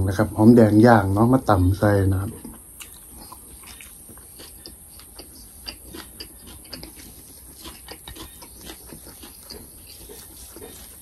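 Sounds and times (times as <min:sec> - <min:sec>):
person chewing wetly: 0:02.2 - 0:11.0.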